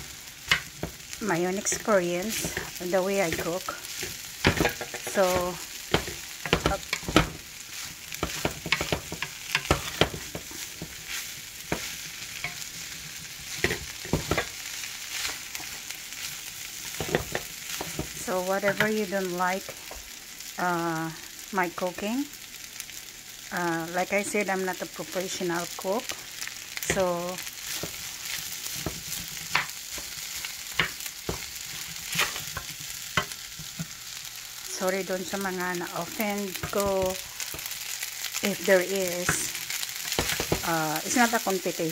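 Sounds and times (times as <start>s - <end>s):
fried rice sizzling in a pan: 0.0s - 41.9s
spatula scraping and tapping pan: 0.4s - 19.0s, 26.8s - 34.0s, 39.2s - 40.7s.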